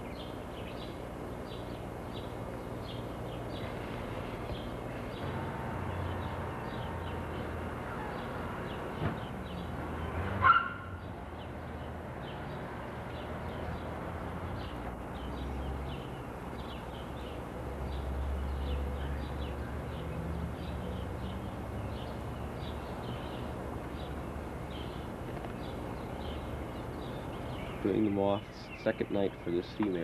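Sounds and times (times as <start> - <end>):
birds chirping: 0.0 - 30.0.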